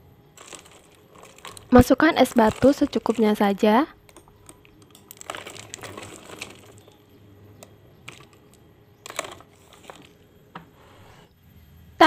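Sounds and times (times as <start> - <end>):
metal spoon clinking on ice and glass: 0.4 - 7.0, 7.6 - 10.2.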